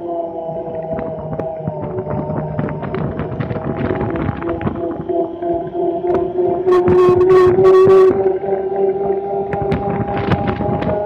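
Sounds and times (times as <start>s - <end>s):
vehicle engine whine: 0.0s - 8.9s
clicks and rattles: 0.8s - 5.2s, 9.5s - 11.0s.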